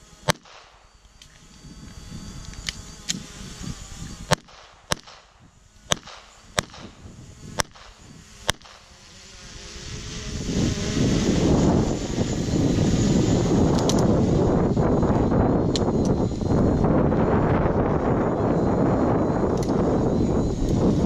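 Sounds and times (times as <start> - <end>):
handgun shots: 0.3 - 0.8, 4.3 - 5.3, 5.9 - 6.9
wind noise on microphone: 1.2 - 21.0.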